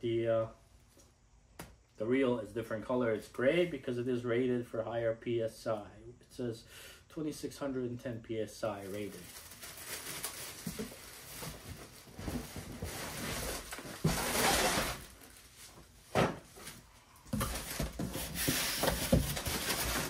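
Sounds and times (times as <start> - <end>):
plastic wrapping crinkling: 8.8 - 16.0
cardboard box scraping: 12.4 - 15.2.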